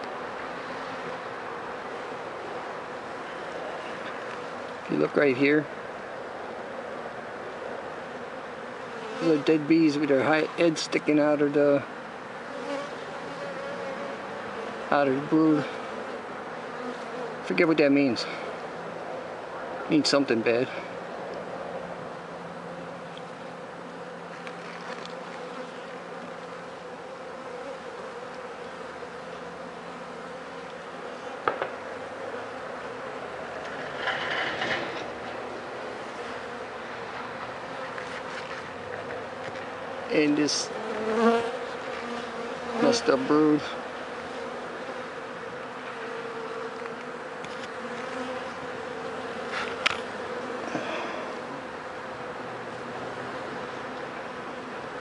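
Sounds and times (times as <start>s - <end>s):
bees buzzing: 0.0s - 55.0s
sharp knock: 31.4s - 31.8s.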